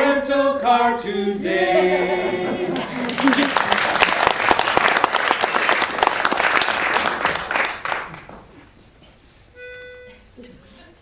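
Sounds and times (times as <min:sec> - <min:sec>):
audience applauding: 0:02.8 - 0:08.5.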